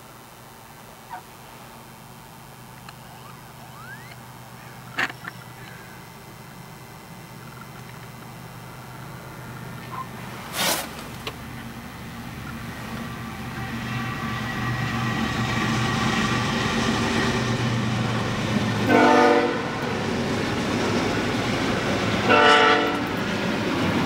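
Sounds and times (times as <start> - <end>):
locomotive rumble: 7.0 - 24.0
locomotive air horn blasts: 13.0 - 15.3, 18.8 - 19.8, 22.2 - 23.1.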